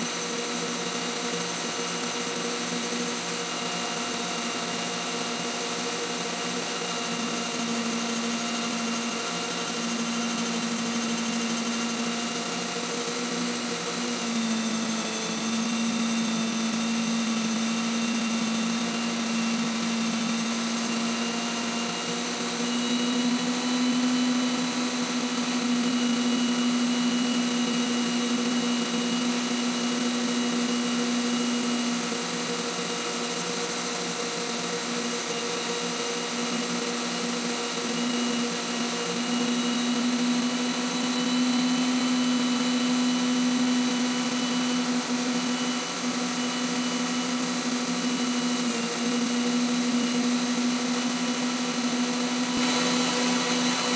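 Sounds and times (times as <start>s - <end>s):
grinder humming and whining: 0.0s - 53.9s.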